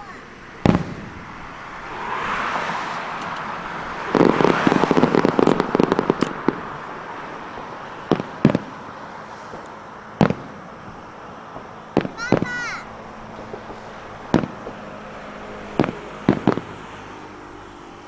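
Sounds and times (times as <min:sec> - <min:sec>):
sharp firework bangs: 0:00.6 - 0:02.0, 0:03.9 - 0:06.9, 0:08.0 - 0:14.8, 0:15.7 - 0:17.0
firework shells crackling: 0:03.1 - 0:06.9.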